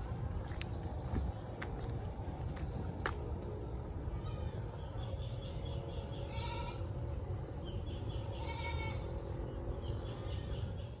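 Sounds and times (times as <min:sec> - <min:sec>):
wind rumble on microphone: 0:00.0 - 0:11.0
farm animal bleating: 0:06.2 - 0:07.0, 0:08.3 - 0:09.2.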